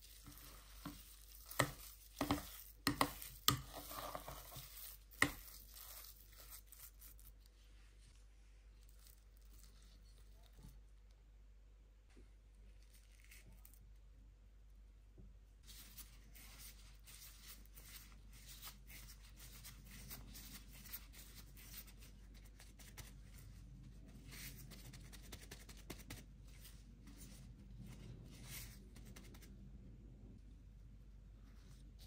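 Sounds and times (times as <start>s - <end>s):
plastic gloves crinkling: 0.0s - 11.0s.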